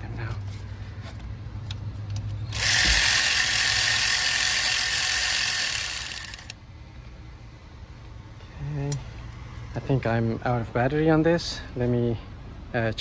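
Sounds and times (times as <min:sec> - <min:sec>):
cordless power tool whirring: 0:02.5 - 0:06.6
power tool clicks: 0:02.5 - 0:06.6.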